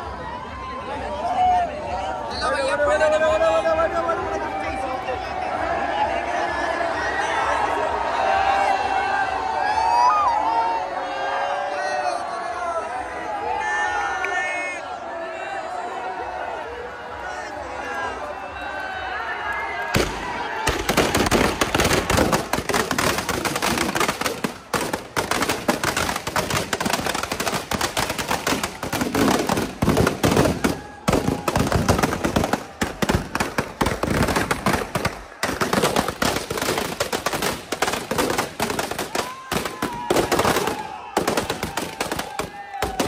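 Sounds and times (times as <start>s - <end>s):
firecrackers banging and crackling: 20.0s - 43.0s.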